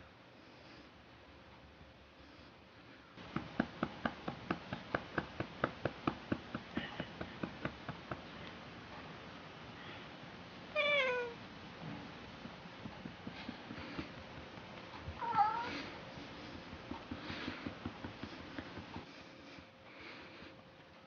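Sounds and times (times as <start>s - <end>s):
hand patting a cat: 3.2s - 8.4s, 11.9s - 19.3s
cat meowing: 10.8s - 11.4s, 15.2s - 15.8s.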